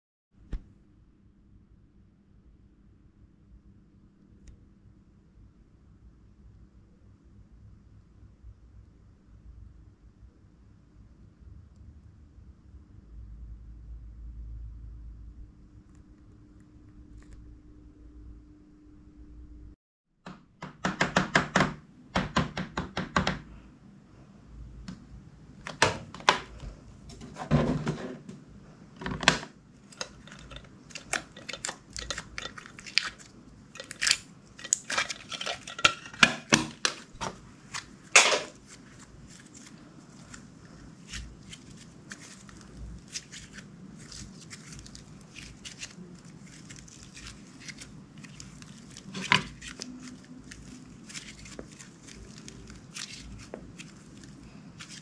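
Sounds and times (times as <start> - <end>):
soft slime handling sounds: 28.2 - 55.0.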